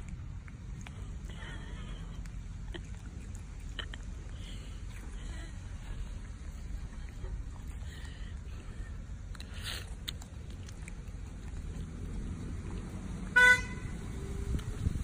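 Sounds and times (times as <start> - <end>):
low background rumble: 0.0 - 15.0
vehicle horn toot: 13.3 - 14.0.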